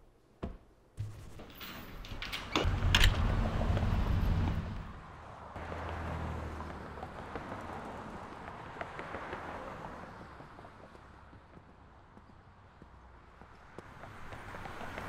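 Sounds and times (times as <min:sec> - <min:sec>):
cars passing: 0:02.2 - 0:15.0
low rumble: 0:02.6 - 0:05.2.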